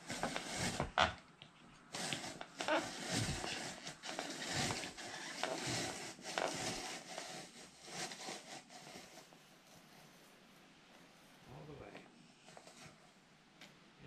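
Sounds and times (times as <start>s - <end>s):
blade scraping apple peel: 0.1s - 1.2s, 2.0s - 9.2s.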